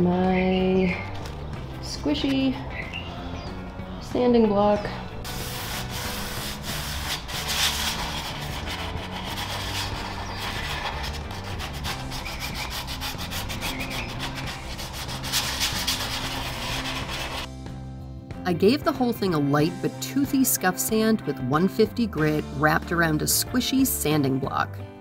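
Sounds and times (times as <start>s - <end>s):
sandpaper rubbing on wood: 5.2s - 17.5s.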